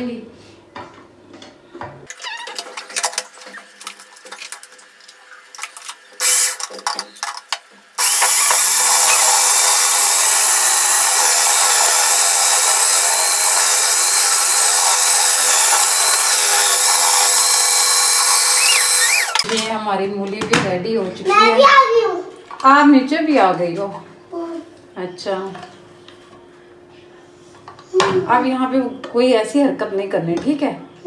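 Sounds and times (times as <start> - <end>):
food processor motor running: 6.2 - 6.6, 8.0 - 19.5.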